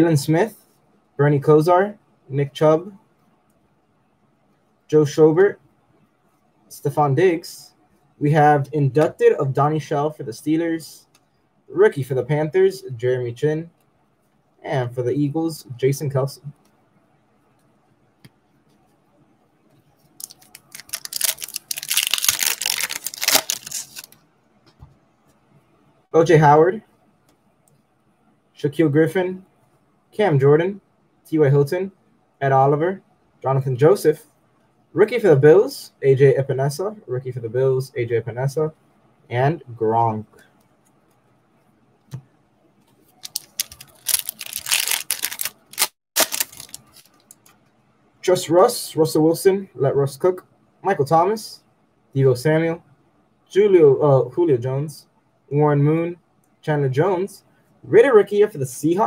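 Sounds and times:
foil wrapper tearing and crinkling: 20.2 - 24.2, 43.2 - 47.4.

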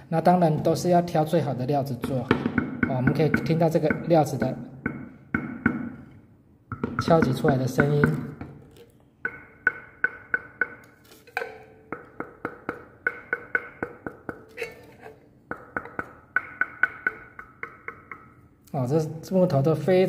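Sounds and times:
fingers tapping wooden soundbox: 6.7 - 8.6, 9.2 - 18.7.

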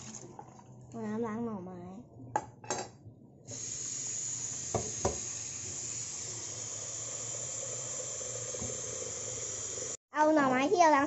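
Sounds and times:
tap water running into metal pot: 3.6 - 10.0.

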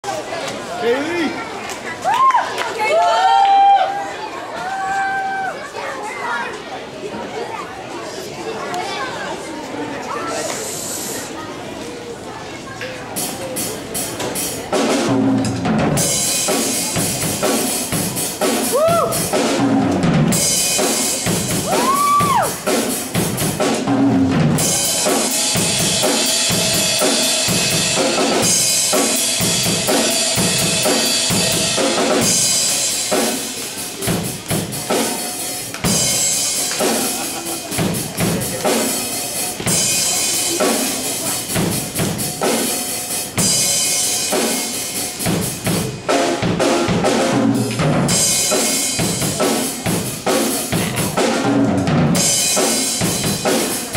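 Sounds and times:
bass drum and snare beat: 45.2 - 53.9.

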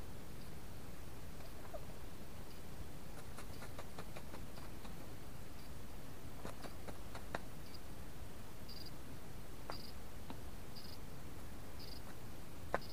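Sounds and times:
bird pecking at feed: 2.5 - 5.1, 6.4 - 7.8.

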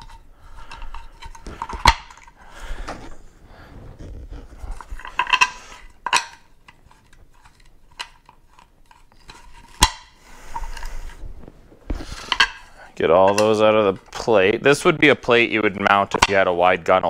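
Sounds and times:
plastic plate rattling: 0.0 - 2.4, 4.5 - 10.0.

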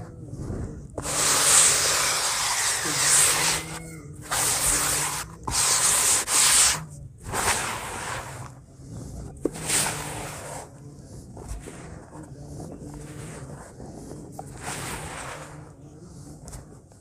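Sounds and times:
cement powder poured through hands: 1.0 - 8.5, 14.4 - 15.8.

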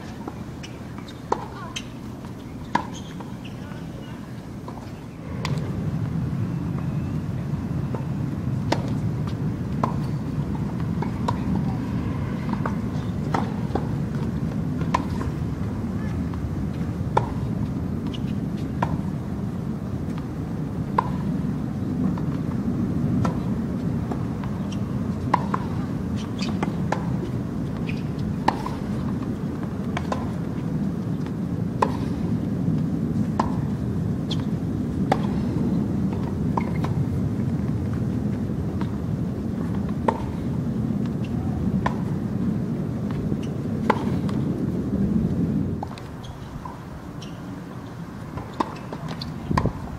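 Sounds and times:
tennis ball struck by rackets: 2.6 - 3.6, 8.7 - 11.8, 12.4 - 15.4, 24.1 - 32.3, 33.3 - 37.0, 41.7 - 42.2, 48.3 - 49.8
steady low rumble: 5.0 - 18.0.

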